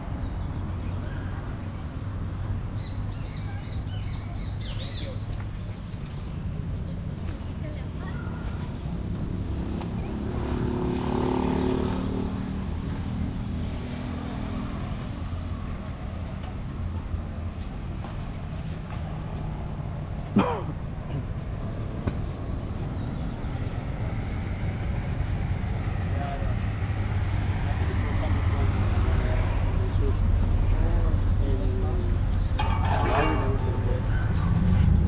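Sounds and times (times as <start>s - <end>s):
low street rumble: 0.0s - 35.0s
car passing: 9.0s - 17.0s, 21.5s - 31.2s.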